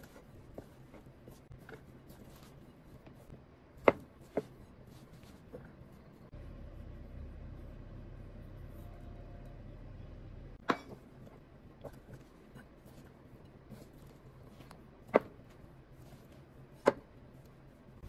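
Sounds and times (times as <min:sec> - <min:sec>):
low hum: 0:05.8 - 0:11.3.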